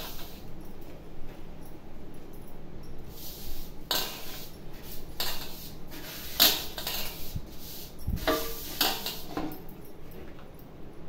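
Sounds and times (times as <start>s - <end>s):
metal bowl scraping plastic bucket: 3.9s - 9.6s.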